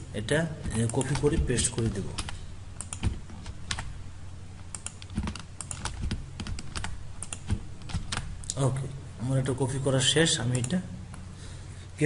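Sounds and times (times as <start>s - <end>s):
computer mouse clicking: 0.7s - 3.9s, 4.6s - 8.3s
keyboard clicking: 0.7s - 3.9s, 4.7s - 8.3s.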